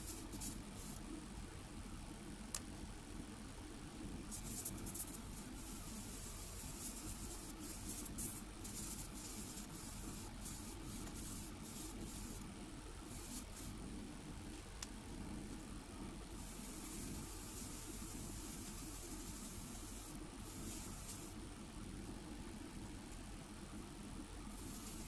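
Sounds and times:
faint hiss bursts: 4.2s - 13.9s, 16.3s - 21.5s, 24.5s - 25.0s.

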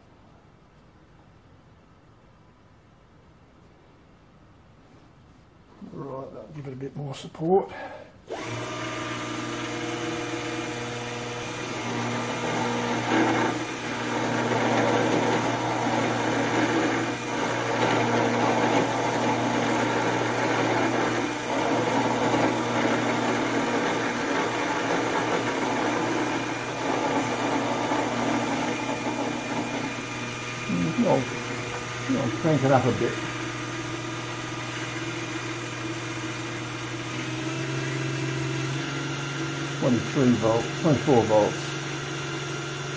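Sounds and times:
end mill cutting metal: 8.3s - 42.9s
motor hum: 8.3s - 42.9s.

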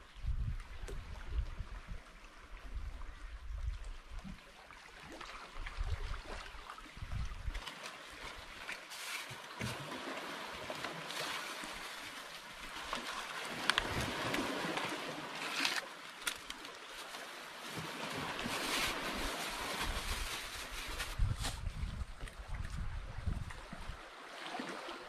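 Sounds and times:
waves washing on rocks: 8.3s - 21.1s
leaves and plastic bag rustling: 8.8s - 9.8s, 11.0s - 22.1s.

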